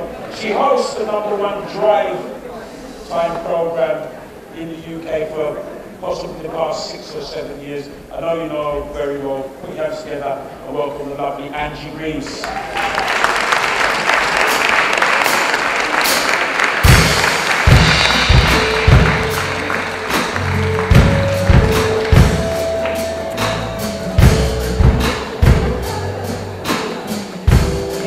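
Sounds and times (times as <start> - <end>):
audience applause: 12.3 - 24.3
live band playing: 13.2 - 28.0.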